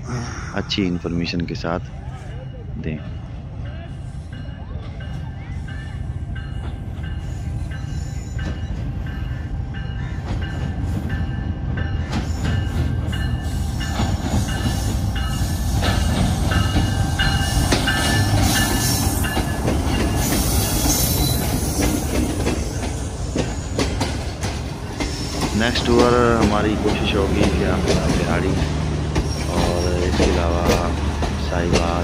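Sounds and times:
diesel locomotive engine rumbling: 0.0 - 32.0
train wheel clatter: 6.5 - 32.0
metallic brake squeals: 20.2 - 21.9.

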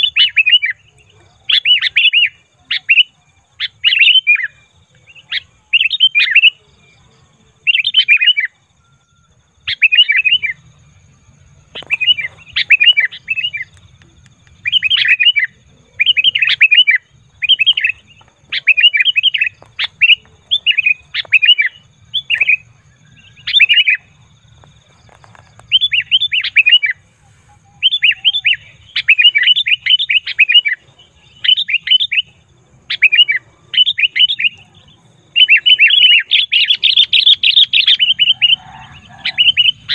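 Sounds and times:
bulbul chattering call: 9.6 - 39.9.

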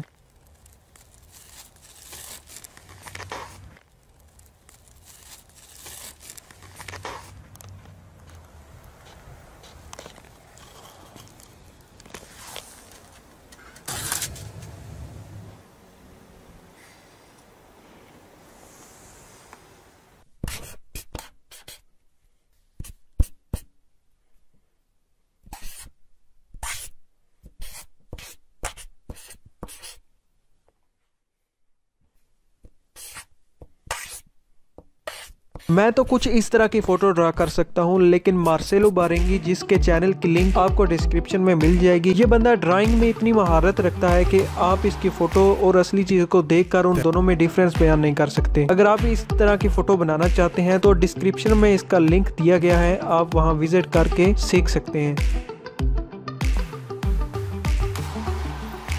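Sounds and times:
gloved hands rustling: 0.0 - 14.8
marker strokes on paper: 0.9 - 3.8, 4.7 - 11.5, 20.4 - 21.9, 22.6 - 23.8, 25.4 - 30.1, 32.6 - 34.3, 35.0 - 36.0.

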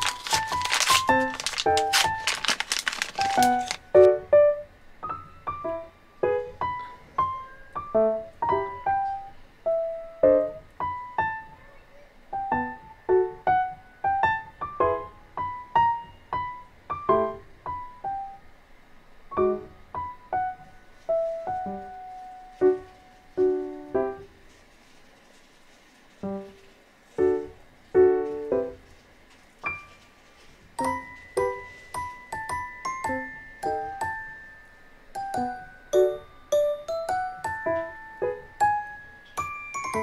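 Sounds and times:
gentle piano melody: 0.0 - 40.0.

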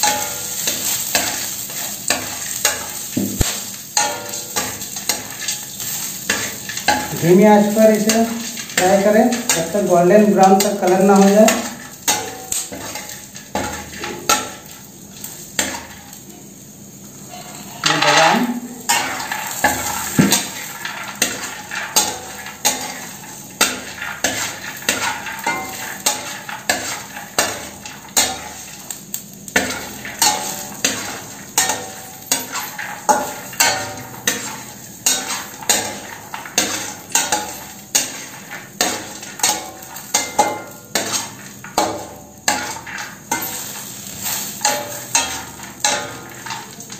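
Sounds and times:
metal spatula clinking on pan: 0.0 - 14.7, 17.8 - 46.9
soft sizzle of frying: 0.0 - 46.9.

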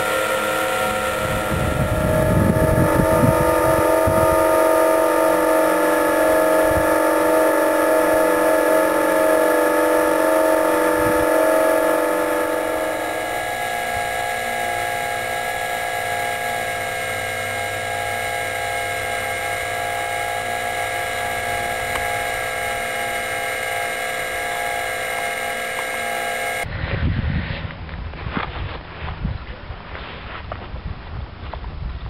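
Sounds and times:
electric motors and propellers whining: 0.0 - 27.1
gusty rumble: 1.1 - 5.3, 26.7 - 29.6.

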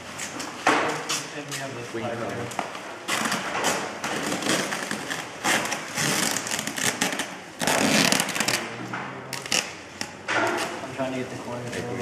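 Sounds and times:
plastic bags and bubble wrap crinkling: 1.1 - 9.8.

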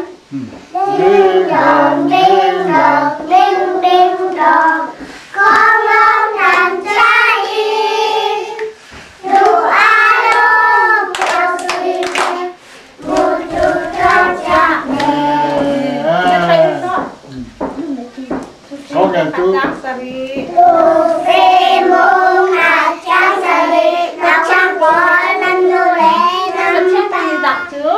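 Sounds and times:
young children singing: 0.0 - 17.1, 20.4 - 27.9
hand claps: 11.1 - 12.4, 13.1 - 15.7.

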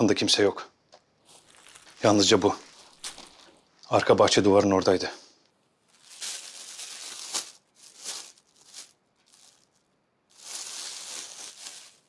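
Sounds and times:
paper pages rustling: 1.2 - 3.7, 10.4 - 12.0.

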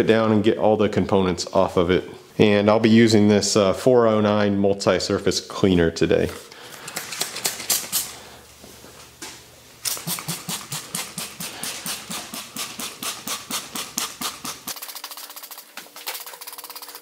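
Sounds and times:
spray bottle spritzes: 9.8 - 17.0.

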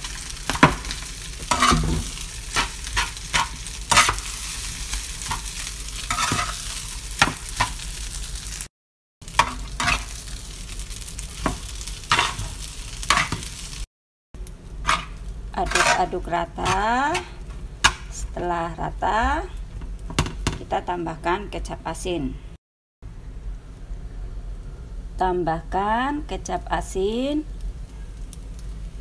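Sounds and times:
frying sizzle: 0.0 - 22.0, 23.1 - 29.0
metal spatula scraping a pan: 1.4 - 7.8, 9.4 - 10.2, 11.4 - 13.6, 14.8 - 18.2.

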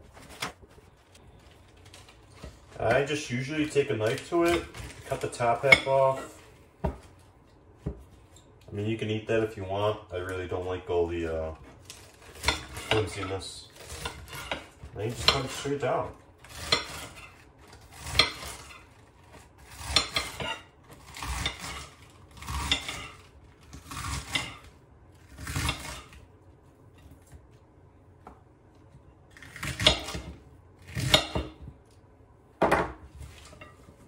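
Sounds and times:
knife slicing crisp lettuce: 11.9 - 15.8, 16.4 - 26.2, 29.3 - 31.6.

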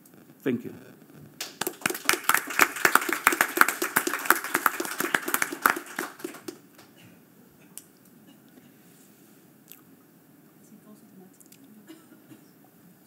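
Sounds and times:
audience applauding: 1.4 - 6.9.

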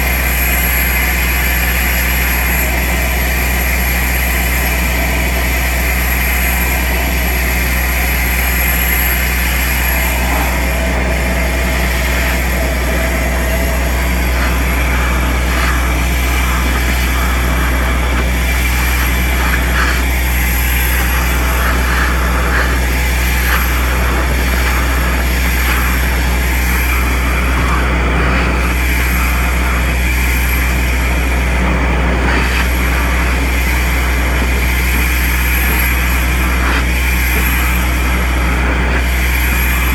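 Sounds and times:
vacuum excavator humming: 0.0 - 39.9
air rushing into suction pipe: 8.1 - 39.9
soil crackling in pipe: 8.1 - 39.9.

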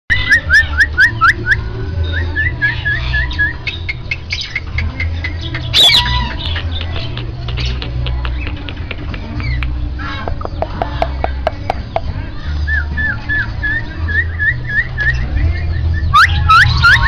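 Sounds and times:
bird chirping and chattering: 3.9 - 12.1.

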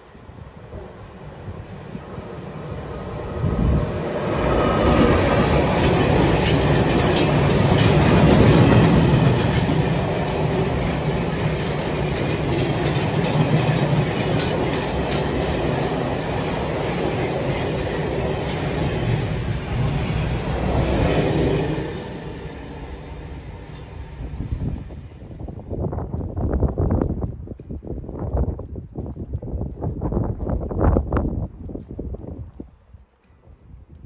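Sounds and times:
train wheels clacking over rail joints: 4.5 - 22.3.

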